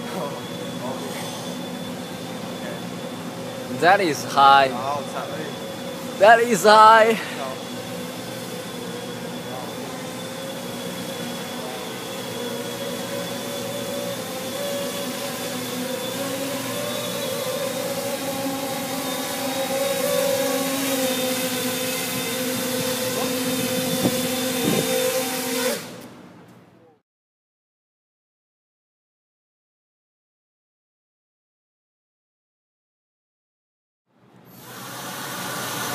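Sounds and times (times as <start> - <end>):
quadcopter propellers buzzing: 0.0 - 26.2, 34.6 - 35.9.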